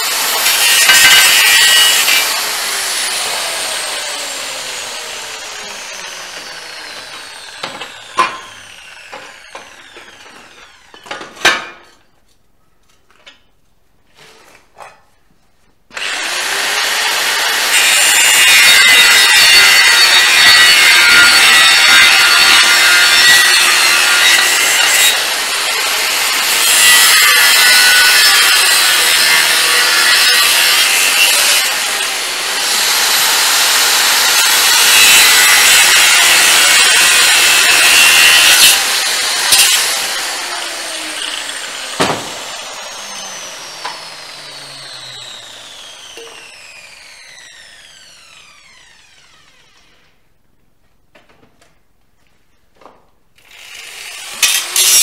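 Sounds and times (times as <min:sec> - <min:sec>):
grinder disc grinding steel: 0:00.0 - 0:11.9, 0:16.0 - 0:49.9, 0:54.0 - 0:55.0
knocks: 0:42.0 - 0:42.4
grinder whine spinning down: 0:42.6 - 0:50.1.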